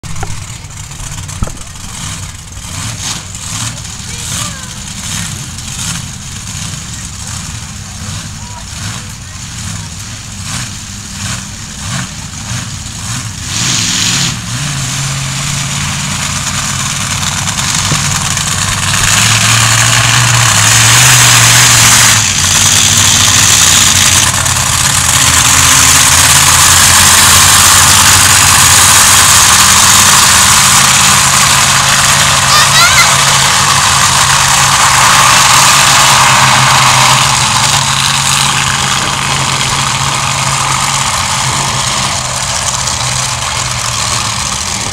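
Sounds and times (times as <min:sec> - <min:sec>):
monster truck engines revving: 0:00.0 - 0:44.9.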